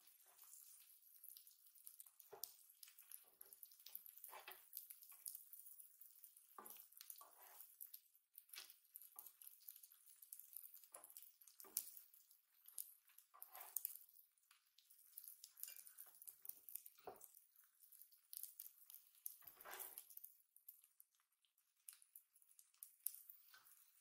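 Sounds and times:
pancakes sizzling on griddle: 0.0 - 14.2, 18.0 - 20.3.

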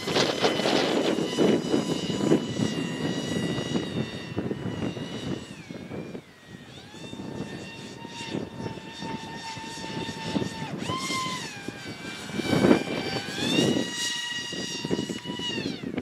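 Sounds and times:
electric ducted fans whining: 0.0 - 16.0
wind on microphone: 0.0 - 16.0.

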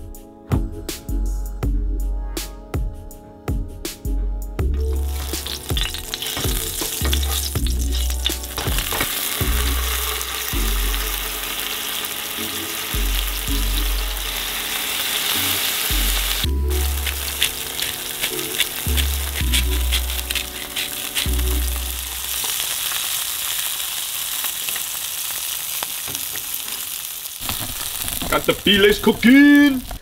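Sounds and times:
background music with bass line: 0.0 - 22.3
fish sizzling in frying pan: 4.8 - 30.0.

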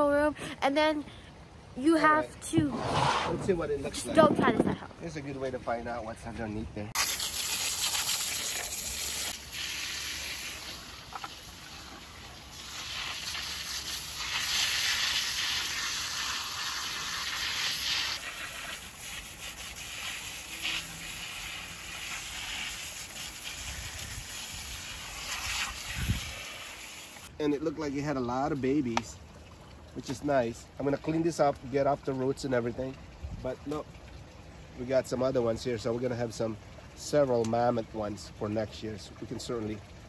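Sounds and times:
hose spray hissing and spattering: 6.9 - 27.3.

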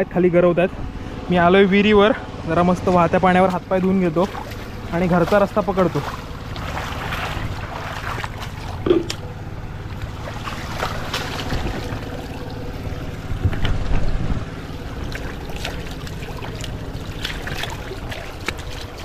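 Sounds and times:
hands and feet splashing water: 2.5 - 19.0
water flowing over stone: 14.6 - 19.0.

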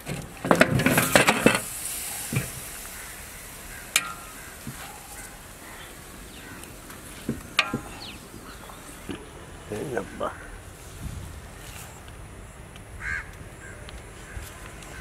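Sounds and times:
meat sizzling in a pot: 0.7 - 8.4
high hiss: 0.7 - 15.0.

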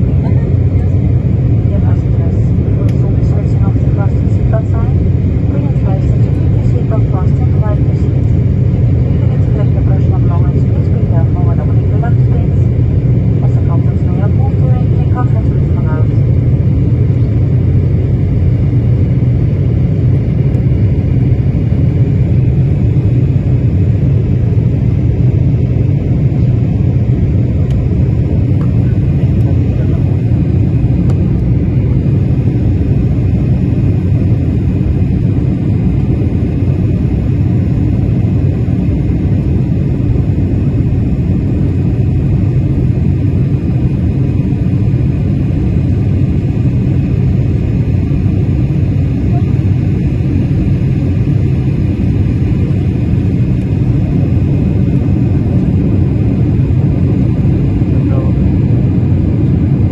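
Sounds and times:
jet engines rumbling in cabin: 0.0 - 59.9.

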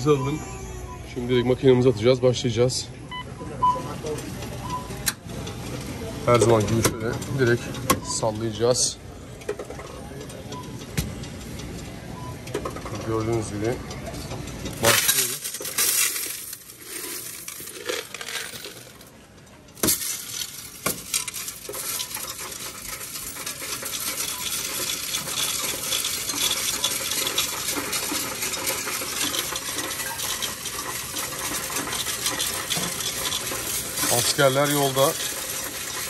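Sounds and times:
coins rattling through machine: 14.6 - 36.0
coins clattering into metal tray: 14.7 - 19.1, 19.8 - 36.0.

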